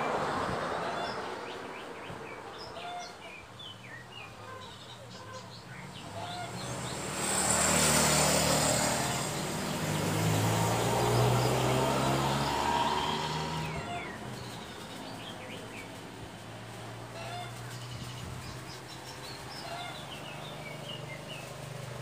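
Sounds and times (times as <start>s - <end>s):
vehicle driving past: 5.9s - 22.0s.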